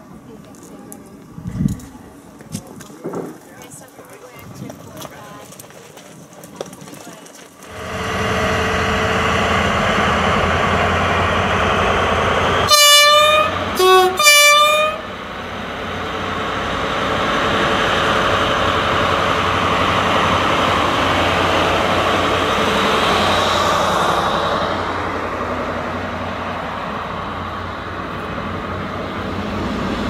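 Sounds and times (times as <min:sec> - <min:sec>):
diesel locomotive engine running: 0:07.5 - 0:30.0
train horn blasts: 0:12.6 - 0:15.1.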